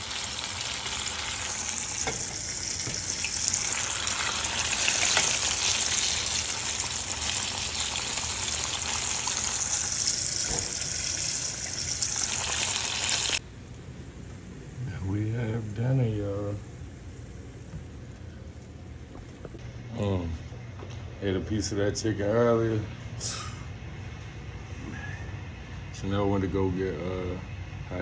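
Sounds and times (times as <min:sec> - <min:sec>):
oil sizzling while deep-frying: 0:00.0 - 0:13.5.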